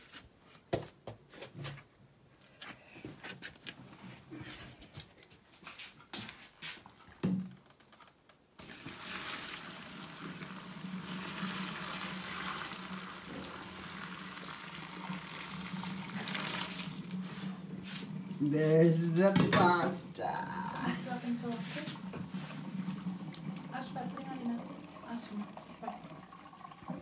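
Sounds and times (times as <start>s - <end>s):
water pouring into colander: 8.6s - 18.4s, 21.1s - 27.0s.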